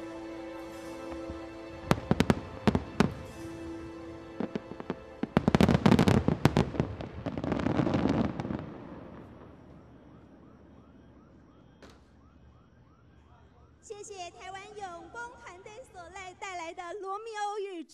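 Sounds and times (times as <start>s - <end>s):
music: 0.0s - 8.1s.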